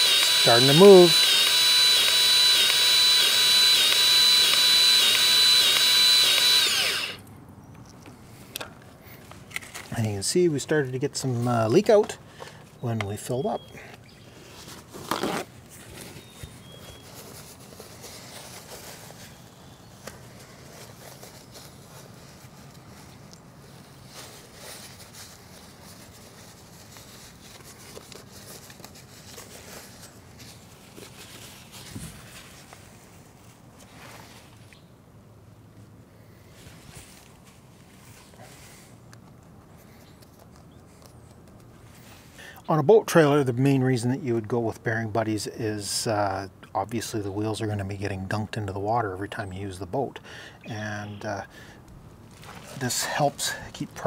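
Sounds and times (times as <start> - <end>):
grease gun motor whine: 0.0 - 7.2.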